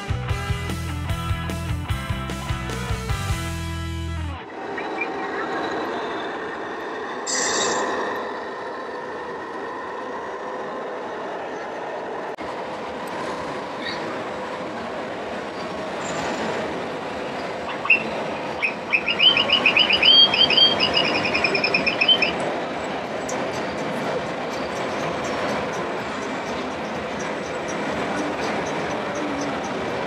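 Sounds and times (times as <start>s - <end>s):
high squeaky chirps: 17.3s - 22.5s.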